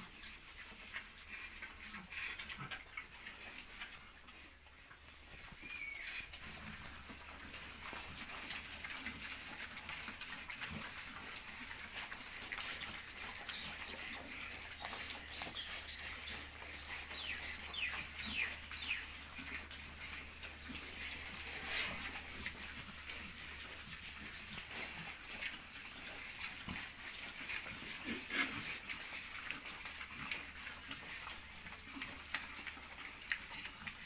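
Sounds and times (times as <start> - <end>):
pigs chewing and rooting: 0.0 - 34.0
birds chirping: 4.9 - 6.5, 12.0 - 22.3.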